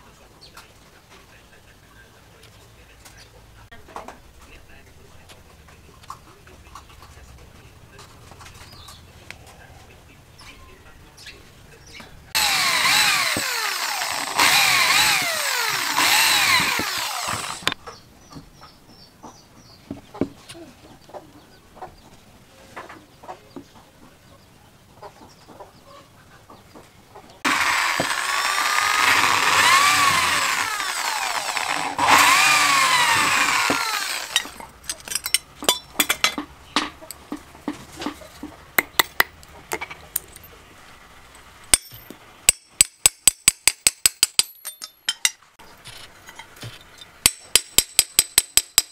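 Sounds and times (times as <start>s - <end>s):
power drill boring into wood: 12.4s - 17.8s, 27.4s - 34.6s.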